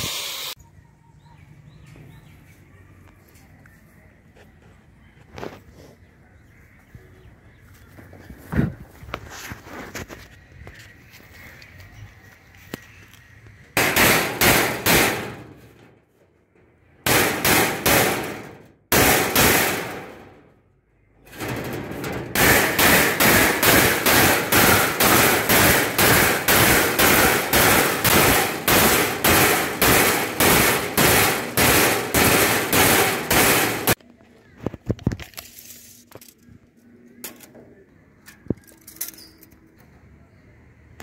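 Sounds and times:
hammer blows on steel sheet: 0:22.4 - 0:34.0.

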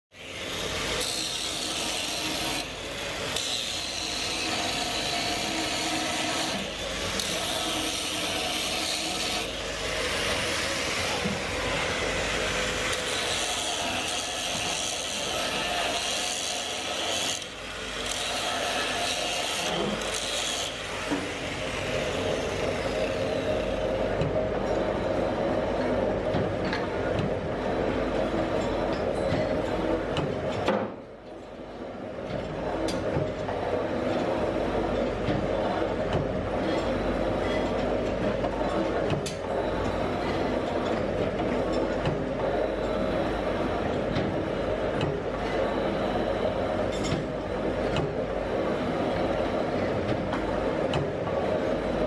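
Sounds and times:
angle grinder grinding steel: 0:12.6 - 0:20.8.

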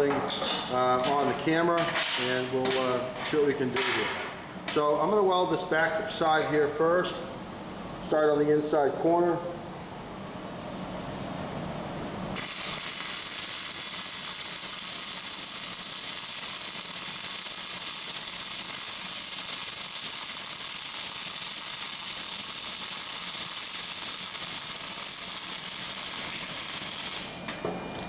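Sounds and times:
welding arc crackling: 0:12.4 - 0:27.4.

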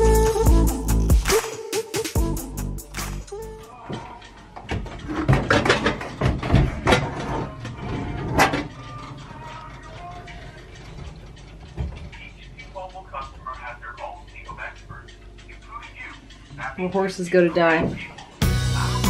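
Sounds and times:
knocks and clatters: 0:03.8 - 0:13.6.

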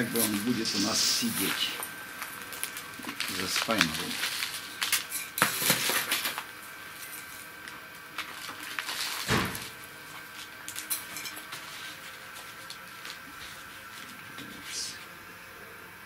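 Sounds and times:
heavy thump: 0:09.3 - 0:09.7.

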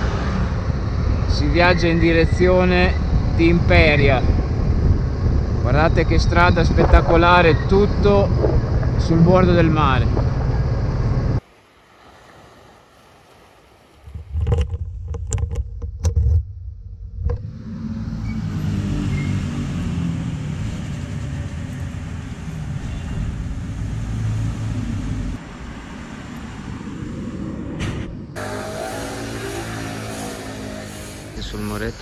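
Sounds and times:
scooter engine running: 0:28.4 - 0:31.4.

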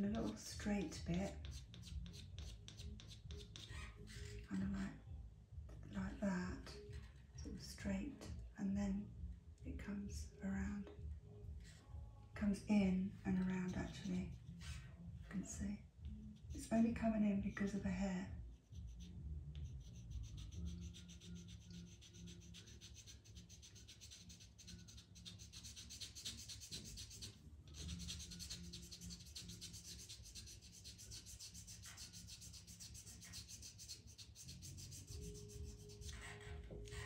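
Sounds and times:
pencil scratching on paper: 0:00.0 - 0:04.4, 0:18.6 - 0:37.0.

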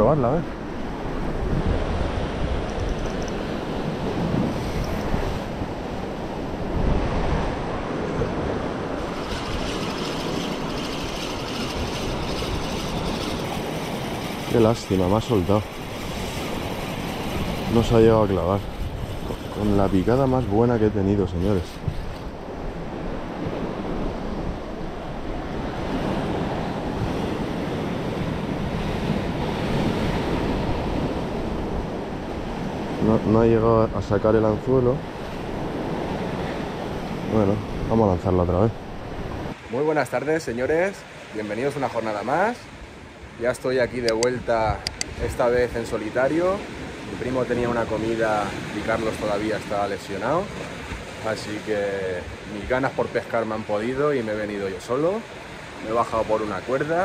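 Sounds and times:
wind buffeting microphone: 0:00.0 - 0:39.7
sea surf breaking: 0:00.0 - 0:57.0.

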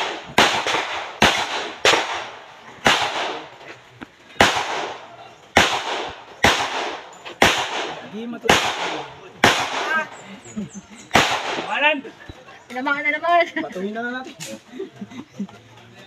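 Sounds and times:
pistol gunshots with echo: 0:00.0 - 0:03.6, 0:04.4 - 0:10.2, 0:11.1 - 0:11.8.

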